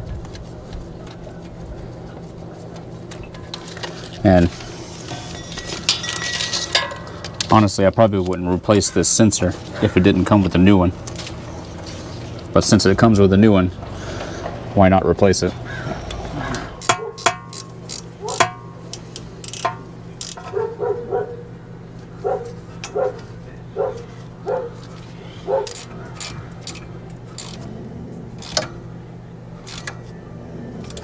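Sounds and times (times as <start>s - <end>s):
steady low hum: 0.0s - 31.0s
dog barking: 18.2s - 18.4s, 20.5s - 21.5s, 22.2s - 24.8s, 25.4s - 25.8s.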